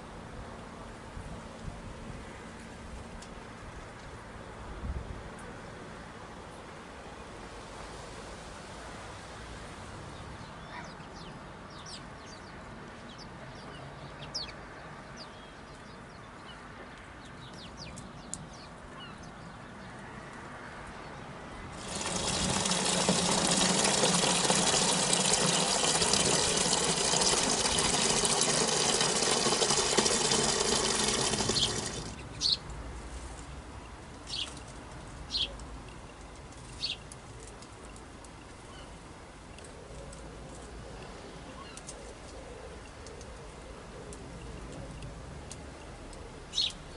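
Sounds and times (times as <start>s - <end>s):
water pouring and splashing: 21.8s - 32.2s.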